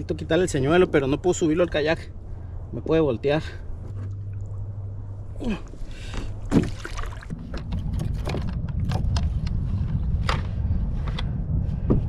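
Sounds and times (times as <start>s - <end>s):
low rumble: 0.0s - 12.0s
water splashing against kayak hull: 6.2s - 9.1s.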